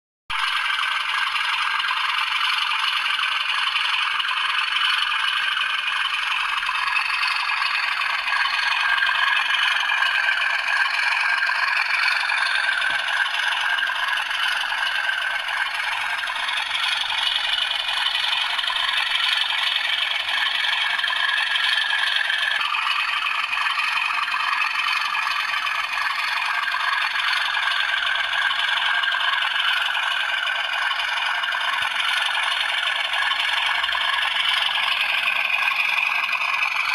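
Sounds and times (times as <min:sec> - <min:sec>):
thin recorded engine idling drone: 0:00.3 - 0:36.9.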